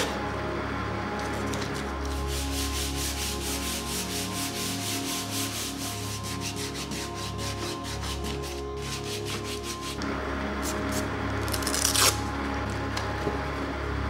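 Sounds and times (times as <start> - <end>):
sandpaper scratching on wood: 2.1 - 10.0.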